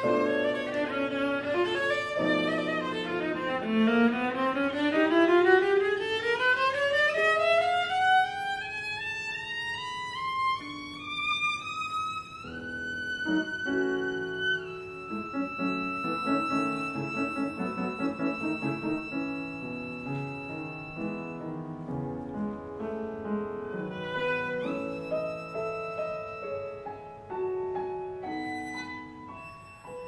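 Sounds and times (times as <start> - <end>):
viola holding high notes: 10.6 - 21.6
rapid piano chords: 15.1 - 28.3.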